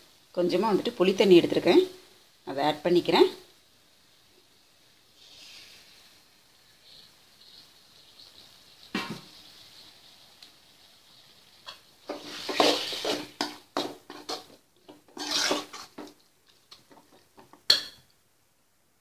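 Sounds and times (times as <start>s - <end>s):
faint sizzle: 0.0s - 19.0s
metal spoon scraping a pan: 11.6s - 16.1s.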